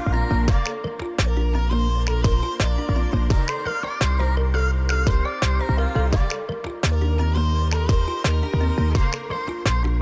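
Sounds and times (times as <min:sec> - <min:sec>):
deep bass: 0:00.0 - 0:03.5, 0:04.1 - 0:06.3, 0:06.9 - 0:09.1
background music with drum beat: 0:00.0 - 0:04.3, 0:04.9 - 0:10.0.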